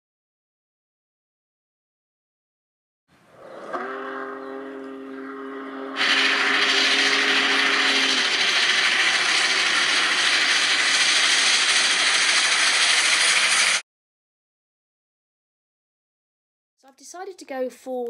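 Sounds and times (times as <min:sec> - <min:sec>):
steam locomotive chime whistle: 0:03.8 - 0:10.5
steam hiss and running train: 0:05.9 - 0:13.8.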